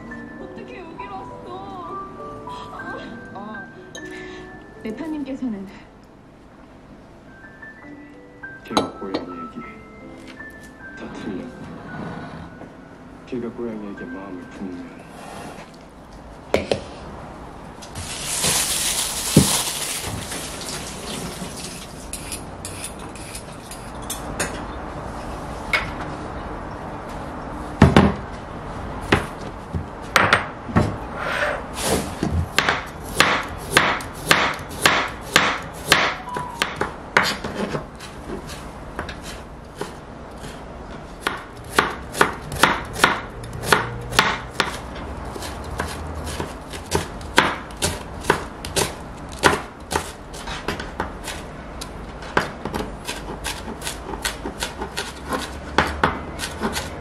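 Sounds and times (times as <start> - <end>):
knife chopping on cutting board: 31.9 - 40.6, 41.2 - 51.4, 52.3 - 57.0.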